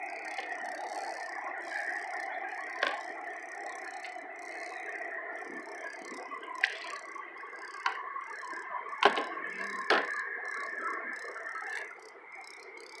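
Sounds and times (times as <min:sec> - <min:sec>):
steady chirring: 0:00.0 - 0:13.0
paddle knocking against canoe: 0:02.8 - 0:03.2, 0:07.8 - 0:08.0, 0:09.0 - 0:10.2.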